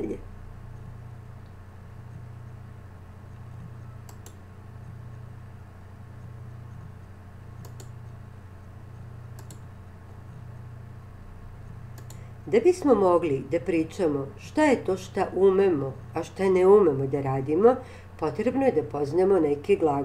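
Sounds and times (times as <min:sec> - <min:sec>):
low electrical hum: 0:00.0 - 0:20.0
computer mouse double clicks: 0:07.6 - 0:08.0, 0:09.3 - 0:09.6, 0:11.9 - 0:12.2.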